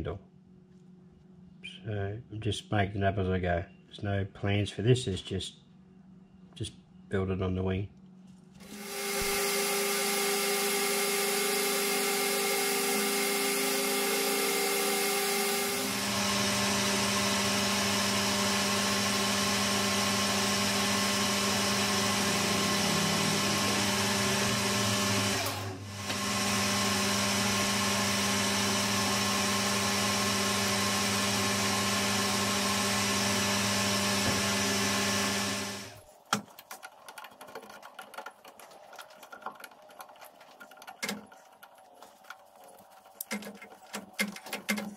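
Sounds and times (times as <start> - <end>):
metal lathe whining: 8.7 - 36.0.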